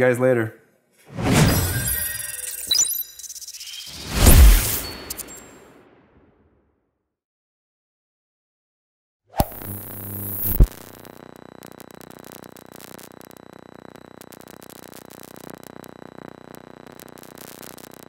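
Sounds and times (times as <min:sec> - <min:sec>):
whoosh: 0:03.9 - 0:05.5
sharp hit: 0:04.0 - 0:05.7.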